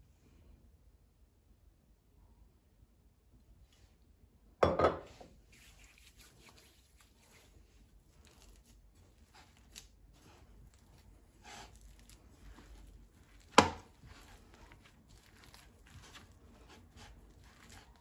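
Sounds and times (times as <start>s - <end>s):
object knocking on kitchen counter: 4.6s - 5.1s.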